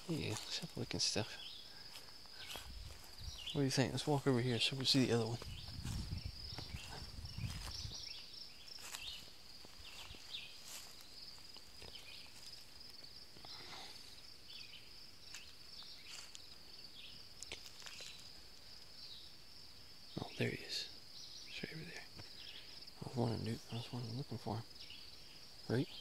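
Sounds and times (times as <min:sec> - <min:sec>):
footsteps rustling through grass: 0:00.0 - 0:14.4, 0:15.2 - 0:18.4
high-pitched insect chorus: 0:00.0 - 0:26.0.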